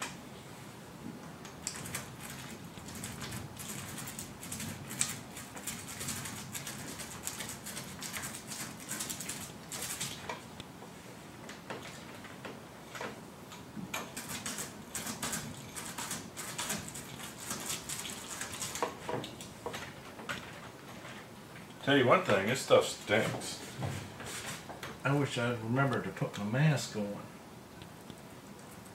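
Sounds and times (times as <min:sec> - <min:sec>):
paint roller wet sticky crackle: 0:01.4 - 0:10.7, 0:11.4 - 0:24.7.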